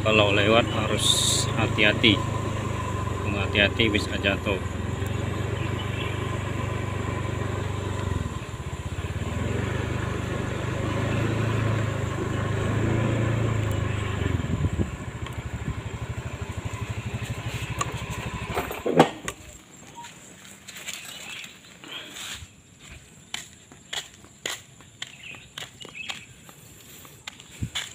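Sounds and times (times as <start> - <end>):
small motorcycle engine: 0.0 - 20.1.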